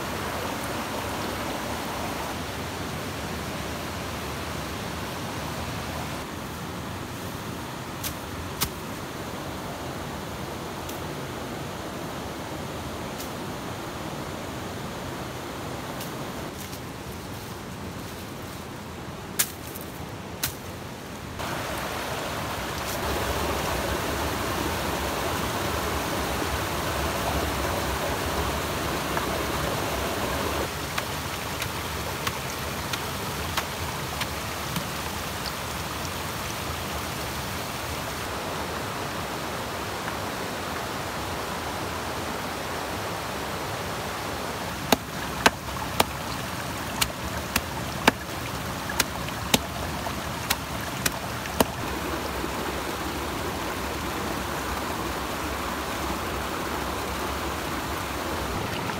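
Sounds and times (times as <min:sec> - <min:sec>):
stream water over rocks: 0:00.0 - 0:58.9
stone pounding leaves on rocks: 0:44.9 - 0:46.2, 0:46.9 - 0:49.8, 0:50.4 - 0:51.8.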